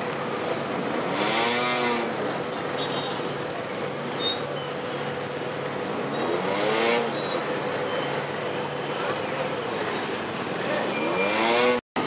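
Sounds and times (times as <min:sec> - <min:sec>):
diesel engine throbbing: 0:00.0 - 0:12.0.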